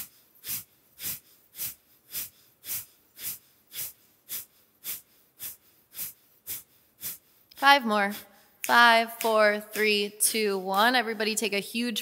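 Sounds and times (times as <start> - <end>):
forceful nasal exhales: 0.0 - 7.5.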